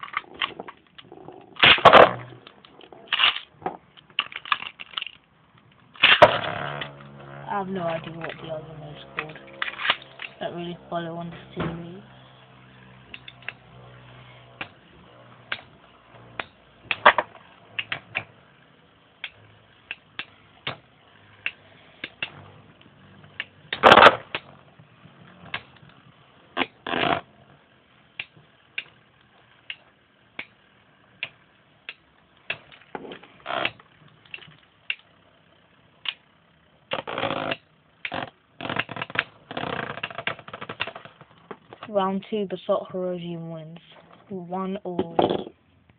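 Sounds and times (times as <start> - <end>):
plastic clacks: 0.0 - 7.2, 31.2 - 35.1, 36.9 - 41.9.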